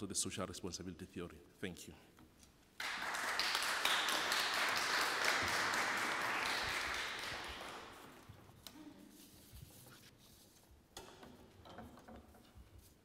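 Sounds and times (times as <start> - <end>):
audience applauding: 2.8 - 8.3.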